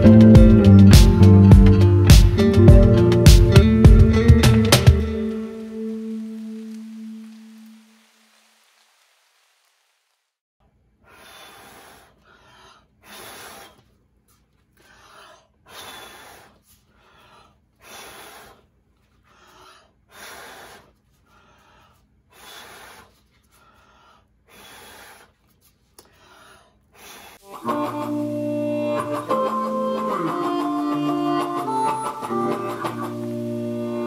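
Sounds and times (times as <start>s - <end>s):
person breathing in and out: 11.0s - 27.5s.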